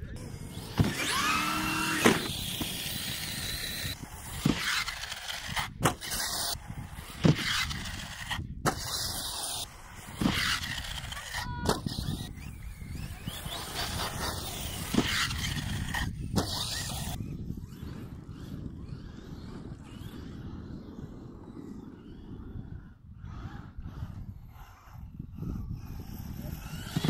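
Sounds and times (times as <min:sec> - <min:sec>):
electric motors whining: 0:00.0 - 0:27.0
toy trucks landing thuds: 0:00.4 - 0:12.5.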